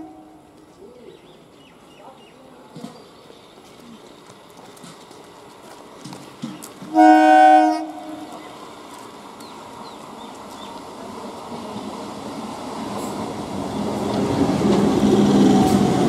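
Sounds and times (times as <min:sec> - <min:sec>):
train rumble: 0:00.0 - 0:16.0
train horn blast: 0:06.9 - 0:08.4.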